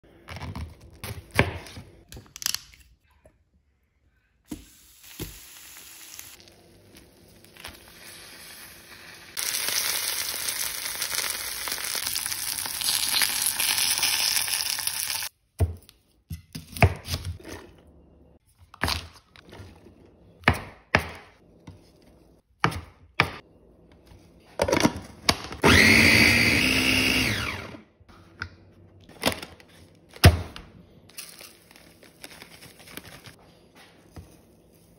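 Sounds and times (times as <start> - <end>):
cabbage sizzling in a pan: 4.5 - 15.3
food processor motor running: 25.6 - 27.9.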